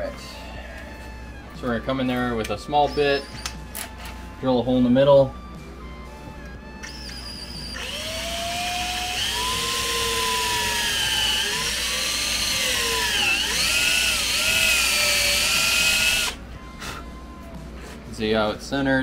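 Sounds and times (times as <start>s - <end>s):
cordless drill drilling into metal: 6.8s - 16.4s.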